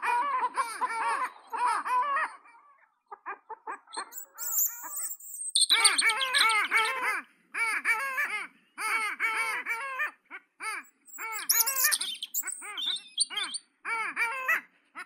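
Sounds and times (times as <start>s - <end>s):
birds calling in short runs: 0.1s - 7.2s, 10.8s - 13.7s
thin high bird chirps: 3.9s - 7.0s, 10.8s - 13.6s.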